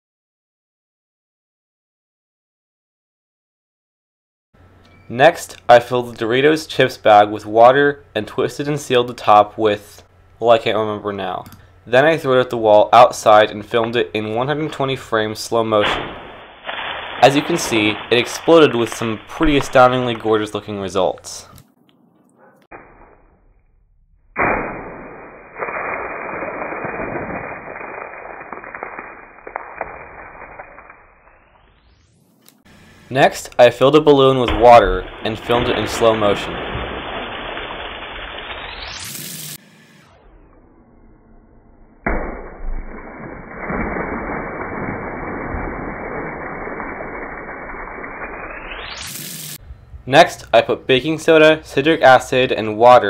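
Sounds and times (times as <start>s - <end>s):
water splashing and spattering: 15.4s - 21.1s, 24.4s - 31.6s, 33.2s - 39.6s, 42.1s - 49.6s.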